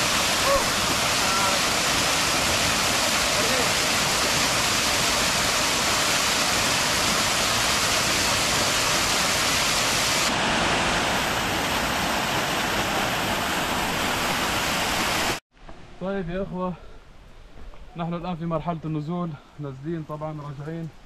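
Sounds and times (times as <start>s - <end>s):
waterfall rushing: 0.0s - 15.4s.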